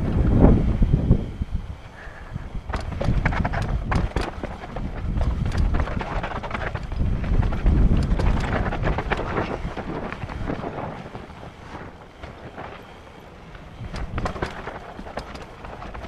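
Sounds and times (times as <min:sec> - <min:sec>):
wind rumble on microphone: 0:00.0 - 0:16.0
bike clattering over rocks: 0:02.6 - 0:12.9, 0:13.5 - 0:16.0.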